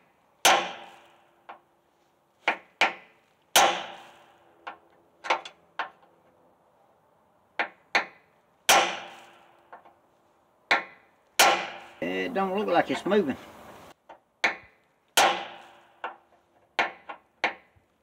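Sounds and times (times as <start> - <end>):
hammer striking metal punch: 0.4 - 1.0, 3.6 - 4.1.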